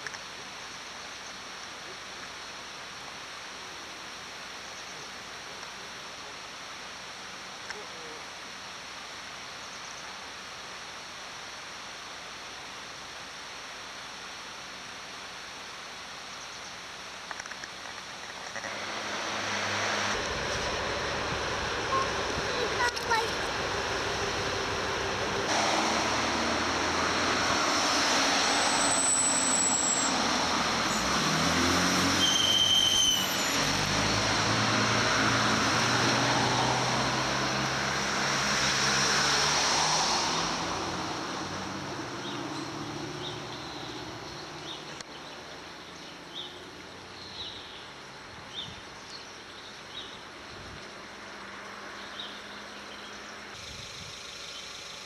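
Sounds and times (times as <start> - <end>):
street traffic noise: 16.8 - 55.0
train rumbling: 20.0 - 28.6
train wheel squeals: 28.5 - 30.2, 32.2 - 33.7.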